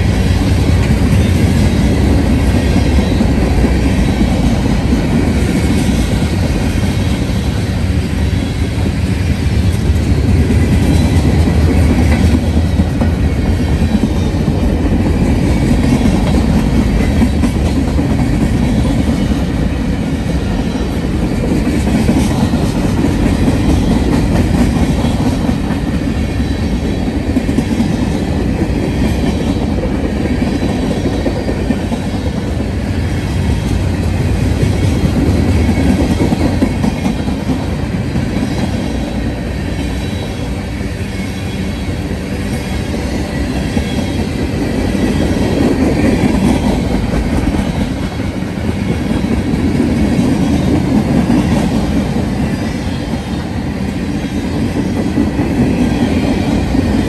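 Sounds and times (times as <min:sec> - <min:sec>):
freight train rumbling past: 0:00.0 - 0:57.0
steel wheels clattering on rails: 0:00.0 - 0:57.0.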